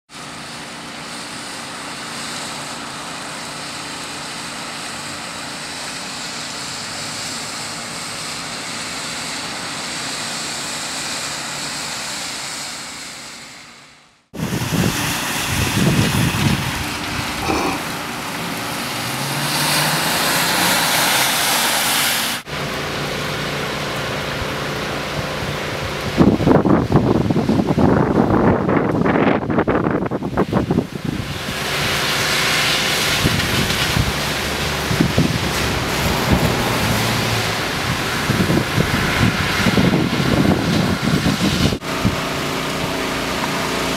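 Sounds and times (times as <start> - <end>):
tyres swishing through water: 0.1 - 26.6, 30.4 - 43.9
rain hissing: 0.1 - 43.9
traffic on a flooded street: 0.1 - 43.9
car engine rising: 13.0 - 27.9, 30.9 - 43.9
wind gusting on microphone: 14.3 - 21.1, 25.2 - 42.8.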